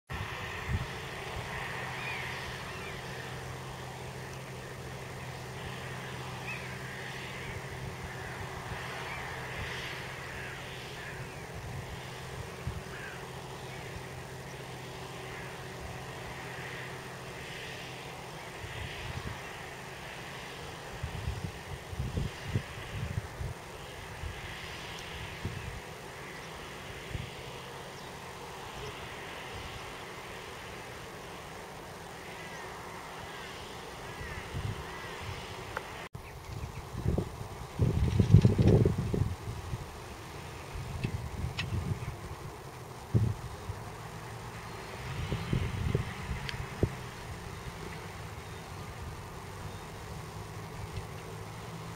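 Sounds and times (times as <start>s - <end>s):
tractor diesel engine under load: 0.1s - 36.1s, 37.0s - 51.9s
bird calls: 1.8s - 17.4s
crows cawing: 10.0s - 11.5s, 12.8s - 13.6s.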